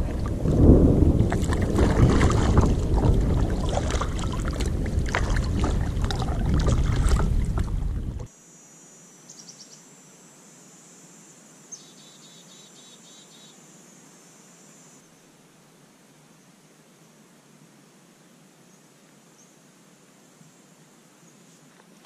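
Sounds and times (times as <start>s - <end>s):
river water slapping a canoe: 0.0s - 8.3s
wind on microphone: 0.0s - 8.3s
high-pitched insect buzz: 8.3s - 15.1s.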